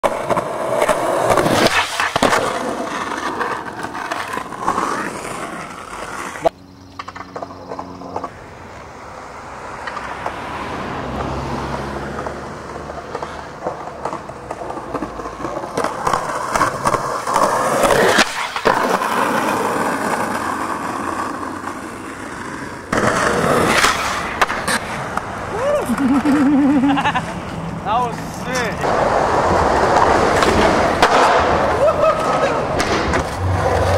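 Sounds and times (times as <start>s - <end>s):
skateboard clacking on ground: 0.0s - 8.4s, 9.7s - 10.4s, 12.0s - 33.9s
skateboard wheels rolling on concrete: 0.0s - 33.9s.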